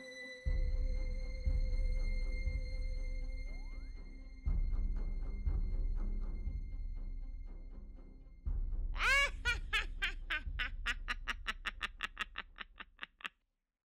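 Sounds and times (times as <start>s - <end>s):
witch cackling: 9.0s - 13.3s.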